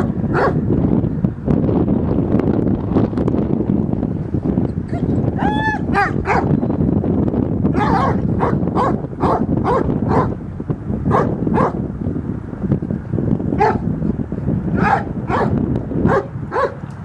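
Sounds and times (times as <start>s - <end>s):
dog barking: 0.3s - 0.6s, 5.9s - 6.5s, 7.8s - 10.4s, 11.1s - 11.8s, 13.6s - 13.8s, 14.8s - 16.8s.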